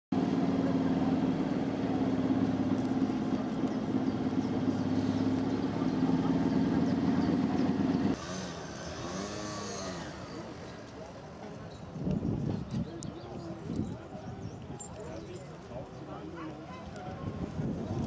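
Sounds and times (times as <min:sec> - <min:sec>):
engine idling: 0:00.2 - 0:08.2.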